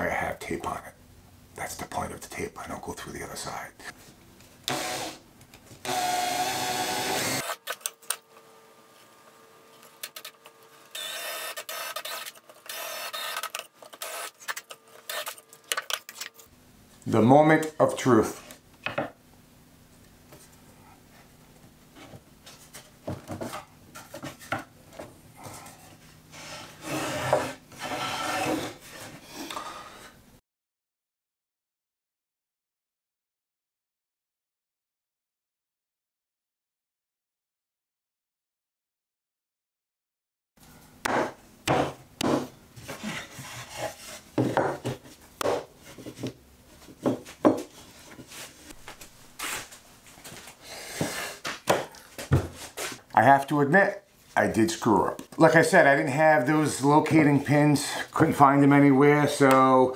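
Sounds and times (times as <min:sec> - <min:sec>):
wood scraping on wood: 0:25.4 - 0:30.1, 0:41.1 - 0:48.8.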